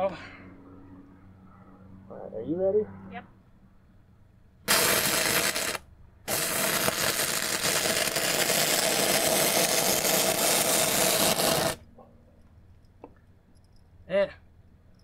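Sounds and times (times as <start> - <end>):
welding arc crackling: 4.7 - 11.8.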